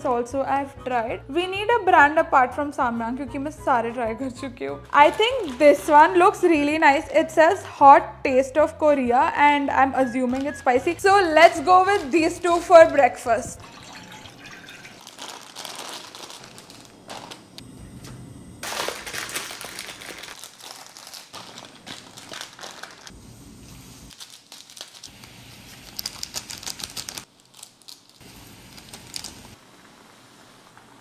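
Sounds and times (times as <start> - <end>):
plastic packets crinkling and tearing: 5.0 - 5.9, 11.4 - 12.8, 14.6 - 17.6, 18.6 - 23.2, 24.1 - 29.6.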